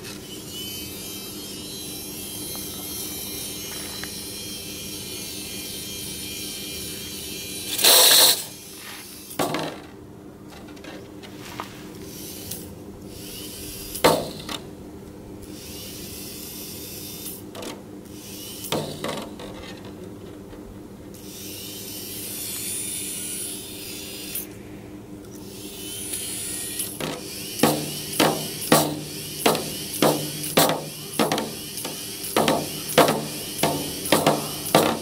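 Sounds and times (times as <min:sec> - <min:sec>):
steady low hum: 0:00.0 - 0:35.0
knocks on tambourine head: 0:27.0 - 0:35.0.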